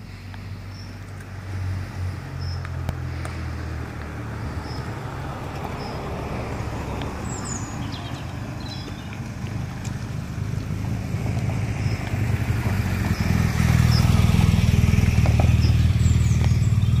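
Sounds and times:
car engine rumble: 0.0 - 17.0
bird chirps: 6.9 - 9.2, 15.4 - 17.0.

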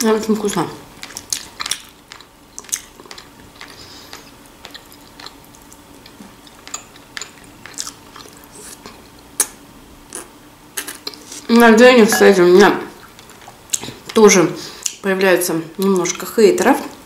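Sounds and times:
person chewing: 1.0 - 11.5.

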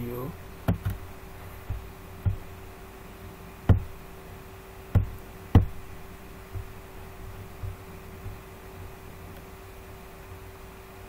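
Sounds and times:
faint hum: 0.0 - 11.0
dull knocks: 0.6 - 2.5, 3.6 - 4.0, 4.9 - 6.8, 7.5 - 8.5.

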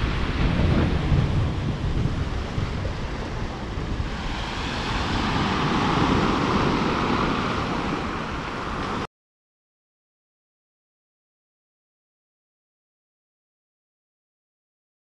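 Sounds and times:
waves breaking on pebble beach: 0.0 - 9.1.

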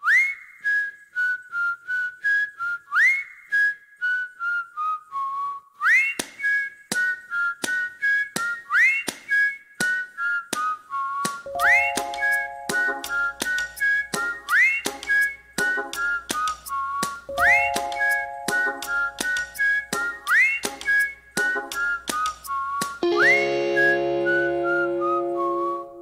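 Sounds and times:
whistled melody: 0.0 - 26.0
low plucked notes: 11.5 - 13.9, 23.0 - 26.0.

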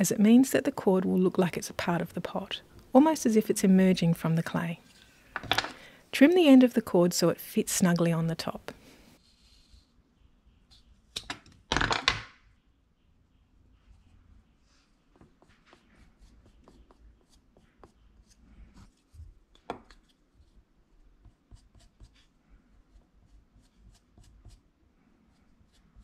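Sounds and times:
sculpting tool scraping clay: 13.8 - 26.0.

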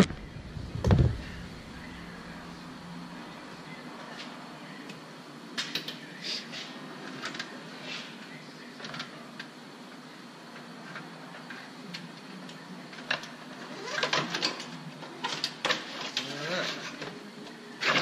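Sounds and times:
steady low hum: 0.0 - 12.9.

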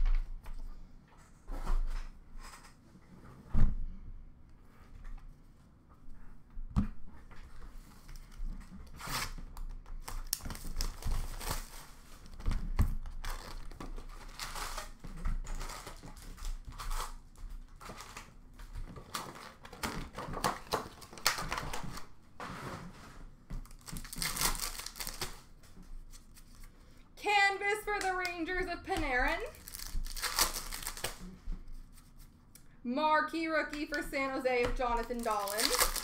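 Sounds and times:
wrappers crinkling and tearing: 10.0 - 12.4, 13.0 - 18.4, 19.0 - 22.1, 23.6 - 26.6, 29.3 - 31.3, 34.9 - 36.0
cards being handled: 34.8 - 36.0.

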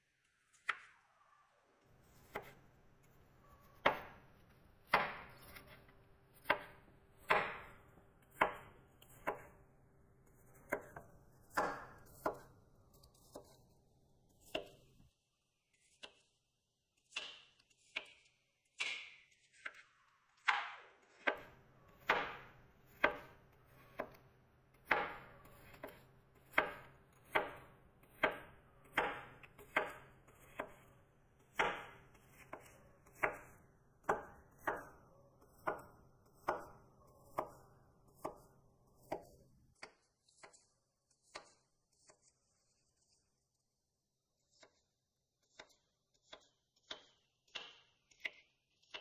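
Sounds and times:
cleaver chopping on wooden board: 3.8 - 4.2, 4.9 - 5.8, 6.4 - 9.6, 10.7 - 12.4, 20.5 - 24.2, 24.8 - 30.9, 31.5 - 34.9, 35.6 - 37.6.

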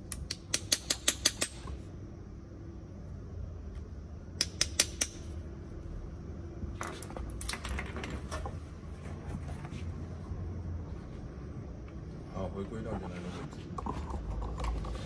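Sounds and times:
metal tools clicking on metal: 0.0 - 1.7, 4.4 - 5.3.

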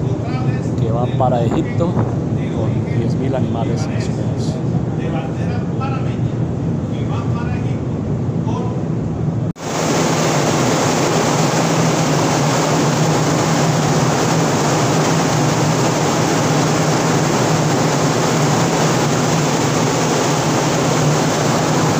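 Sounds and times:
low machinery hum: 0.0 - 21.9
machinery rushing: 9.6 - 21.9.

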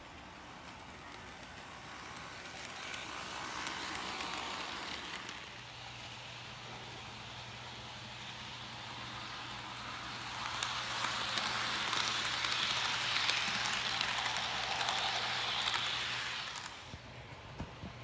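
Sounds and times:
model train wheels whirring: 0.0 - 18.0.

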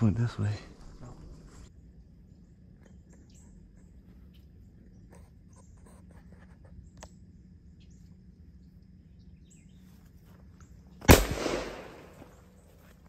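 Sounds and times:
shotgun shot with echo: 11.0 - 12.2.

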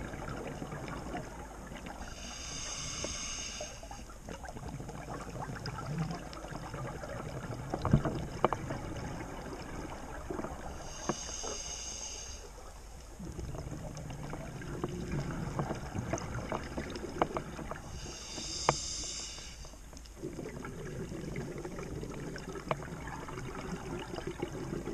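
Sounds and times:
gurgle of exhaled bubbles: 0.0 - 2.0, 4.2 - 10.9, 13.2 - 17.9, 20.2 - 24.9
regulator inhalation hisses: 2.0 - 4.1, 10.7 - 12.6, 17.9 - 19.8.

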